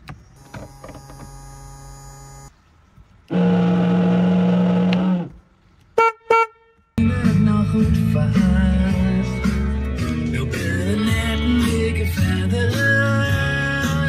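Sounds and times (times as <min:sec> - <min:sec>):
electric boat horn blasts: 0:03.3 - 0:05.4
music: 0:07.0 - 0:14.0.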